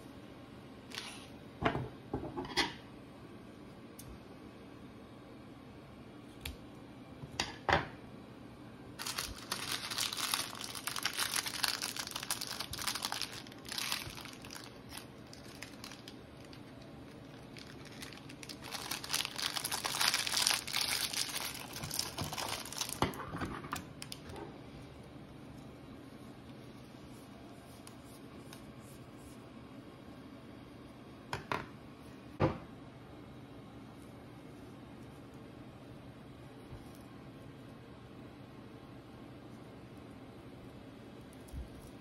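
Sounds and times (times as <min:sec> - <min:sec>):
plastic wrapper crinkling: 0:09.0 - 0:24.4.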